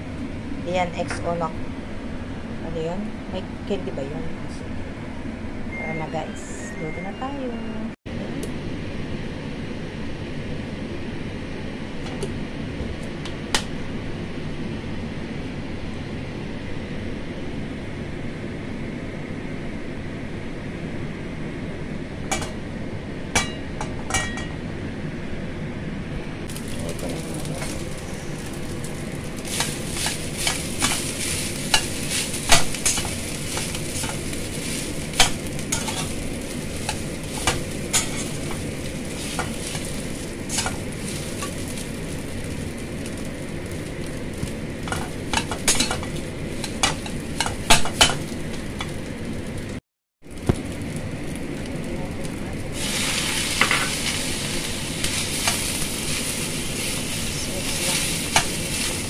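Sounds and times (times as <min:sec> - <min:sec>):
rice sizzling in a wok: 0:26.5 - 0:59.0.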